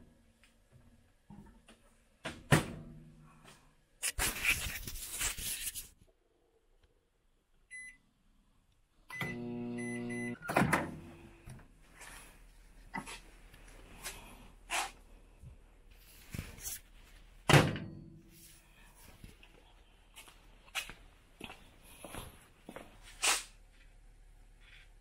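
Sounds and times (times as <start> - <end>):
microwave beeps: 7.7 - 8.0, 9.1 - 10.7
microwave oven humming: 9.1 - 11.2.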